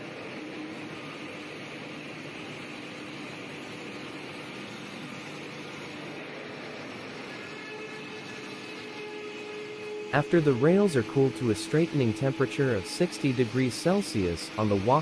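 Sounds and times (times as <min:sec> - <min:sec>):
rolling mill machinery hum: 0:00.0 - 0:15.0
faint steady tones: 0:08.9 - 0:15.0.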